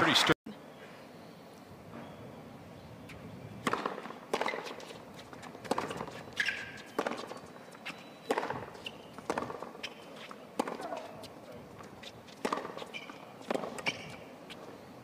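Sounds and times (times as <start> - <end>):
tennis racket hitting ball: 3.6 - 5.0, 8.3 - 9.7, 10.6 - 11.1, 12.4 - 14.1.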